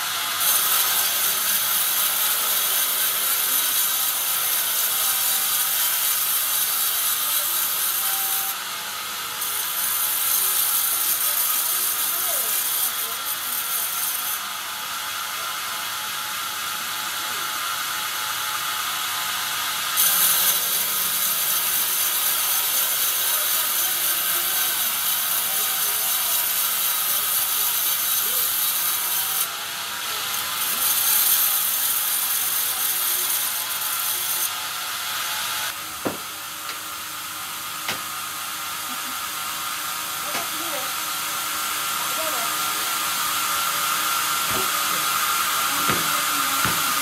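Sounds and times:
bandsaw blade cutting log: 0.0s - 14.6s, 15.2s - 47.0s
knocks of timber handled: 36.0s - 36.8s, 44.5s - 45.1s, 45.8s - 47.0s.

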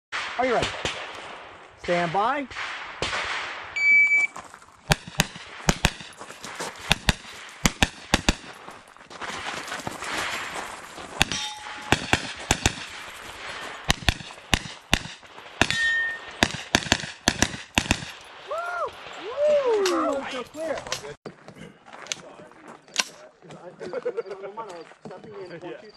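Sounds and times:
rapid gunshots: 0.2s - 3.8s, 4.9s - 8.5s, 11.2s - 18.4s
short ringing tones: 3.8s - 4.3s, 11.3s - 12.0s, 15.7s - 16.4s.

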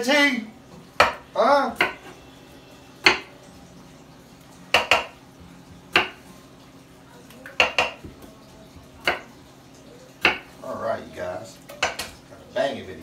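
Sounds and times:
knife chopping on wooden board: 1.0s - 1.2s, 1.8s - 2.1s, 4.7s - 5.1s, 7.6s - 8.1s, 10.2s - 10.5s.

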